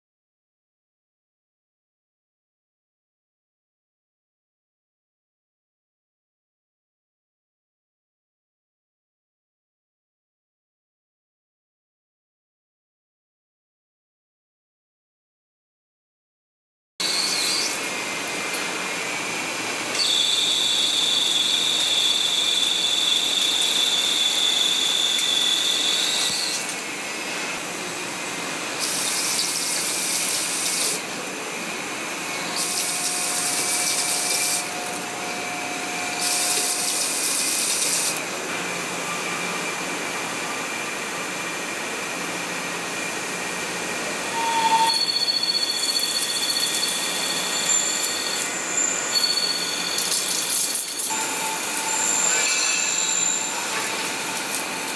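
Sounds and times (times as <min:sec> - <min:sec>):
machine whine: 0:17.0 - 0:41.8, 0:42.6 - 0:54.9
high squealing tone: 0:20.0 - 0:26.8, 0:44.3 - 0:54.9.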